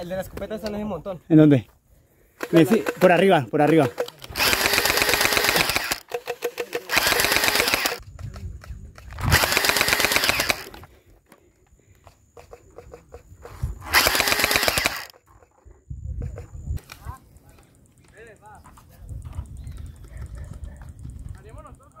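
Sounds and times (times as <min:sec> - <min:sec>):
toy blaster firing rattle: 0:02.4 - 0:10.9, 0:13.8 - 0:15.6
scattered clicks: 0:02.4 - 0:18.4
motor whirring: 0:04.2 - 0:08.0, 0:09.1 - 0:10.9, 0:13.8 - 0:15.1.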